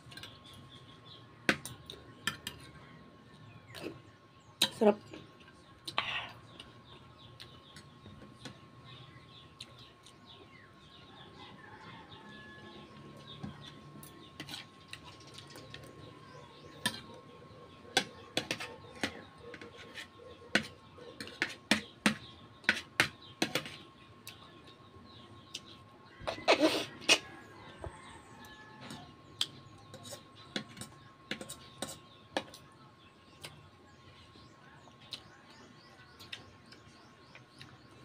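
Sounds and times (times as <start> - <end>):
cutlery on a plate: 1.5 - 2.7, 16.8 - 17.2, 17.9 - 23.8, 29.9 - 32.6.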